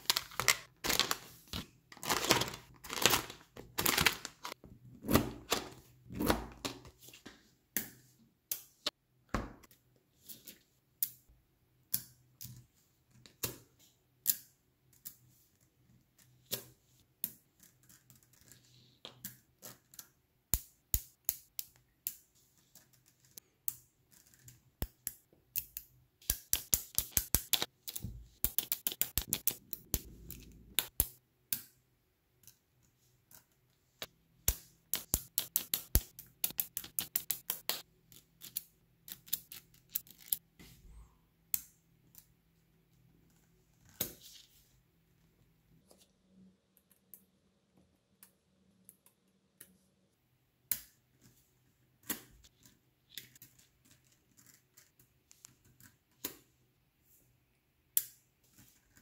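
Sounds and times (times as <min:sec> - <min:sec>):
magnetic balls clicking together: 0:28.4 - 0:30.1.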